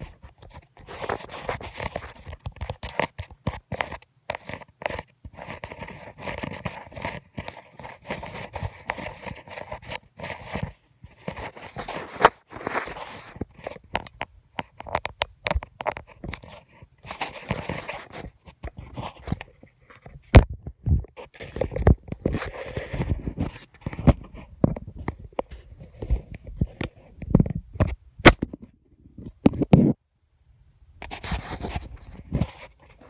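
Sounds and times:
rustling and crackling: 0.0s - 30.0s, 31.0s - 33.0s.

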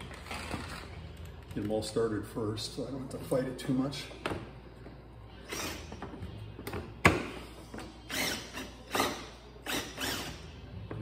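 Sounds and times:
cordless drill driving screws: 8.1s - 10.4s.

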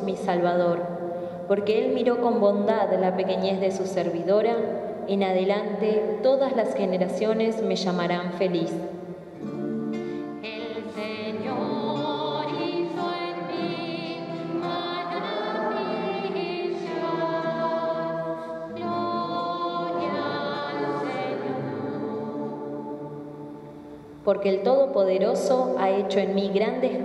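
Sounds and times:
slow singing with vibrato: 9.9s - 24.3s.

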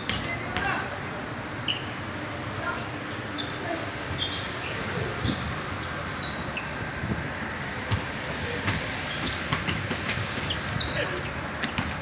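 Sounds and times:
basketball bouncing on a court: 0.0s - 0.8s, 7.8s - 11.0s, 11.6s - 12.0s
short high squeaks: 1.6s - 2.3s, 3.0s - 6.8s, 10.3s - 11.8s.

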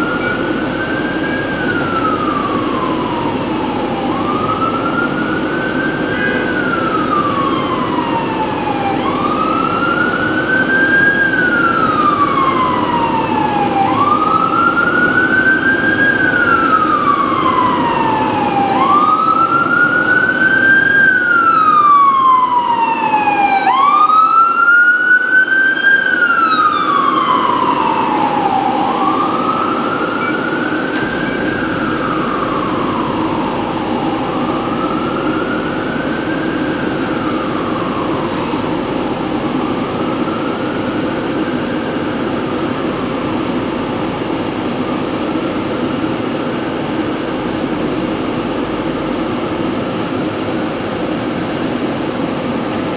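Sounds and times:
steady rushing background noise: 0.0s - 24.0s, 26.7s - 52.9s
siren wailing: 0.0s - 52.9s.

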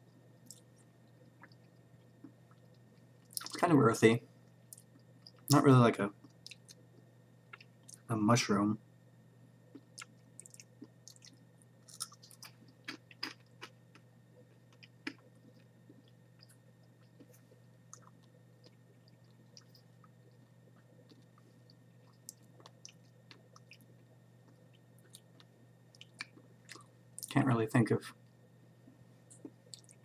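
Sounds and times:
faint low hum: 0.0s - 30.0s
chewing crunches: 0.4s - 3.6s, 9.7s - 27.4s.

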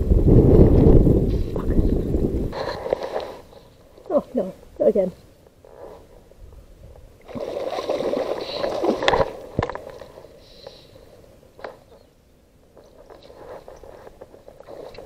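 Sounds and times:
fish splashing in water: 7.2s - 9.6s.

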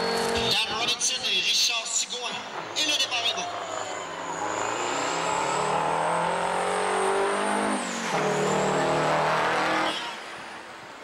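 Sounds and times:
diesel truck engines accelerating: 0.0s - 11.0s.

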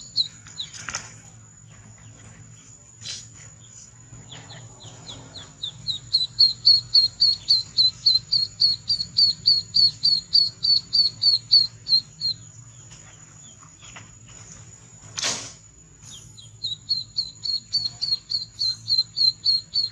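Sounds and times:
duckling peeping: 0.0s - 0.9s, 4.2s - 12.9s, 16.4s - 19.9s.

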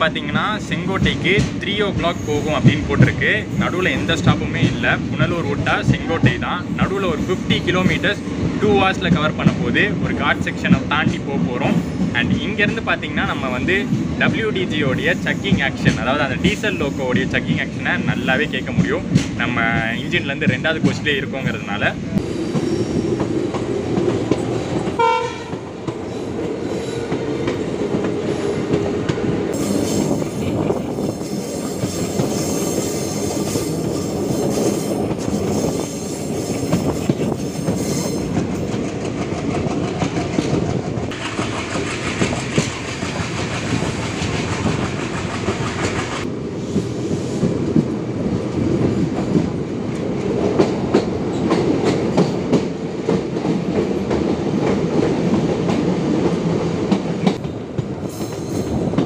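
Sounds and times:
diesel locomotive chugging: 0.0s - 48.0s
train wheels clickety-clack: 0.3s - 59.0s
train horn note: 25.0s - 25.6s.

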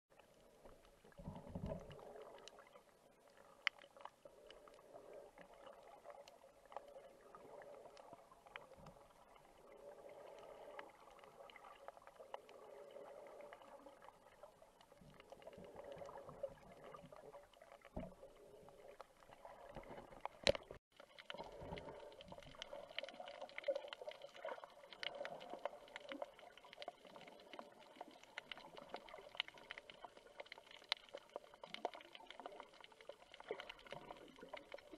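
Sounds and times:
muffled underwater hiss: 0.2s - 34.9s
small clicks: 19.9s - 21.4s.

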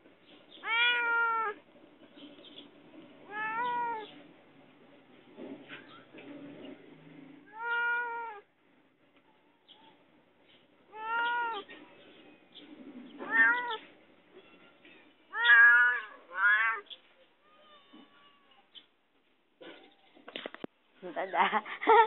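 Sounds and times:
cat meowing: 0.6s - 1.6s, 3.3s - 4.1s, 7.5s - 8.5s, 10.9s - 11.7s, 13.2s - 16.9s.

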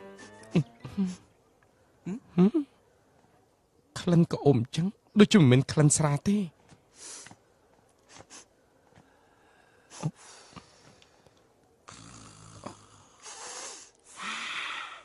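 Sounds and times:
person snorting and sniffing: 8.1s - 8.5s, 11.9s - 13.9s.

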